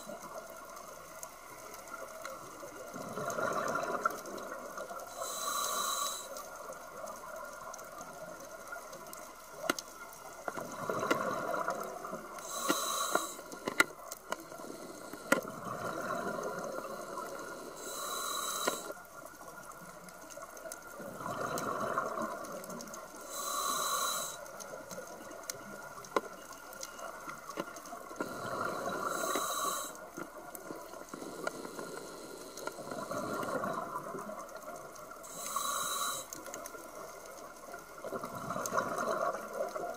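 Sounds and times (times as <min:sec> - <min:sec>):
faint clicks: 0:00.0 - 0:39.9
regulator hissing inhalation: 0:05.1 - 0:06.4, 0:12.4 - 0:13.8, 0:16.7 - 0:19.0, 0:23.2 - 0:24.5, 0:28.2 - 0:30.1, 0:31.2 - 0:33.4, 0:35.3 - 0:36.5.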